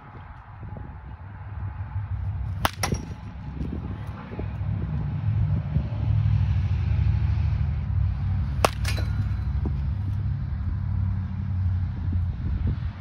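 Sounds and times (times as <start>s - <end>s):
bat cracking a ball: 2.5s - 3.7s, 8.5s - 10.2s.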